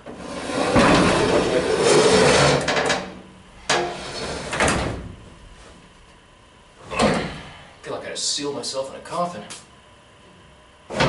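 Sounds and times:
metal door scraping and rattling: 0.1 - 5.5.

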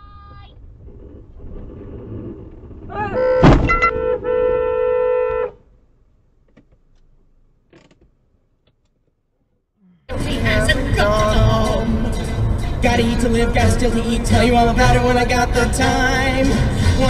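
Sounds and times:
car horn sounding: 3.1 - 5.7
sharp thump: 3.4 - 4.1
car driving on road: 10.1 - 17.0.

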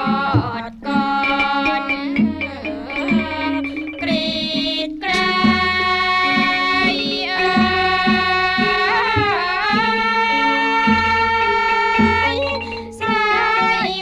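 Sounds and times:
held swooping melody line: 1.2 - 7.6, 9.9 - 14.0.

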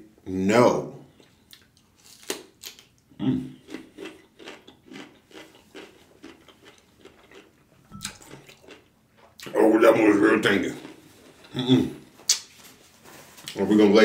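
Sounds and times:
crunchy chewing: 3.6 - 9.5, 10.4 - 12.5.

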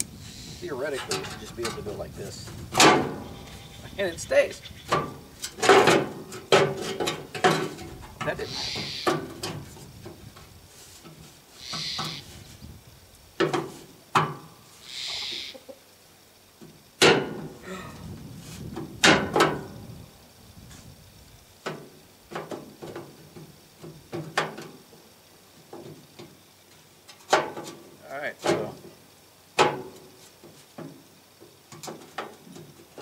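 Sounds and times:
short hissing bursts: 0.0 - 1.0, 8.3 - 19.0.

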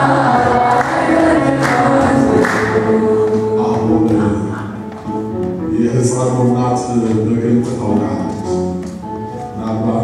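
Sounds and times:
person singing a hymn into microphone: 0.0 - 4.9.

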